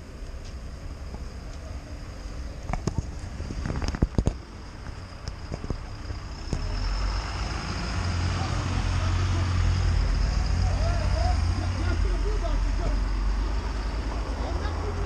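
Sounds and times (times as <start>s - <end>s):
street rumble: 0.0s - 15.0s
wind noise on microphone: 2.7s - 4.4s.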